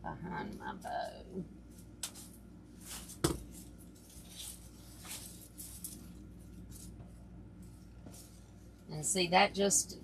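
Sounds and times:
artificial greenery rustling: 0:01.2 - 0:09.1.

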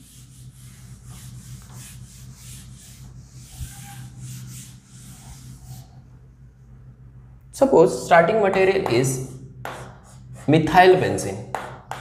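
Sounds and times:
duster rubbing a blackboard: 0:00.0 - 0:06.0.

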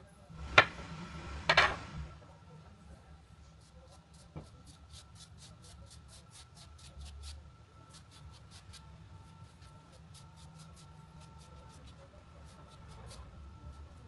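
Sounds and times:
fingers rubbing butter on dough: 0:03.5 - 0:14.0.

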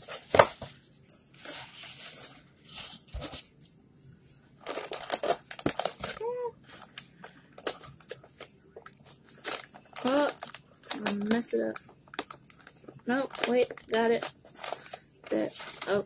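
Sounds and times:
paper wrapping rustling: 0:04.6 - 0:16.0.

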